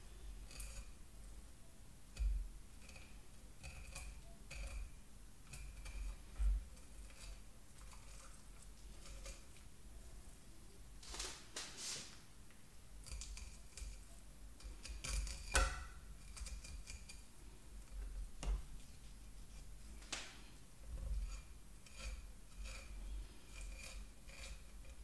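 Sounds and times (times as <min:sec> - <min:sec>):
knife scraping along fish bones: 0:21.2 - 0:25.0.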